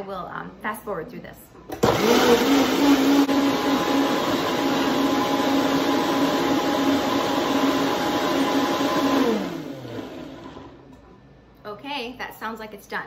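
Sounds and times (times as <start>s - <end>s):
blender running at high speed: 1.8s - 10.8s.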